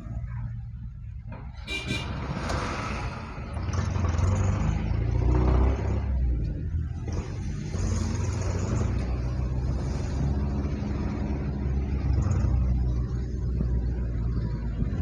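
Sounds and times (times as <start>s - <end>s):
deep engine rumble: 0.0s - 15.0s
street traffic: 0.0s - 15.0s
short high car horn toots: 1.7s - 2.2s.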